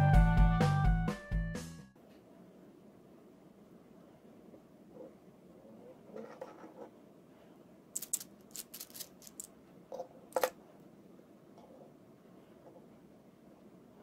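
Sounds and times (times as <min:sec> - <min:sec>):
gripper scraping: 0:08.0 - 0:09.5.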